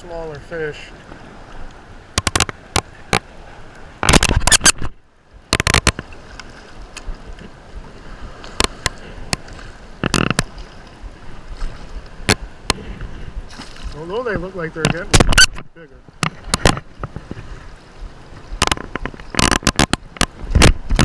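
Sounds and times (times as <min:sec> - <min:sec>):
water slapping against camera housing: 0:02.1 - 0:03.3, 0:04.0 - 0:07.5, 0:08.4 - 0:10.7, 0:14.8 - 0:17.5, 0:18.6 - 0:21.0
fish splashing: 0:13.4 - 0:14.0.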